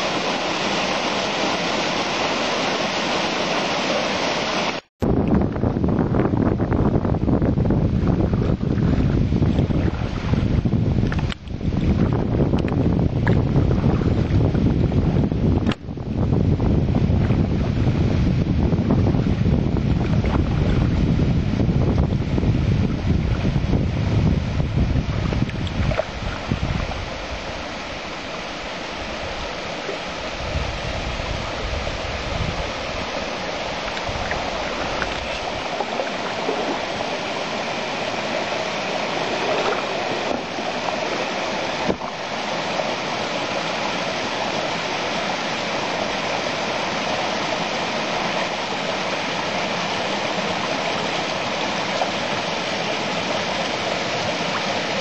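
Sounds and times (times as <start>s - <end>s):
wind and water rushing: 0.0s - 55.0s
wind buffeting microphone: 5.0s - 42.3s.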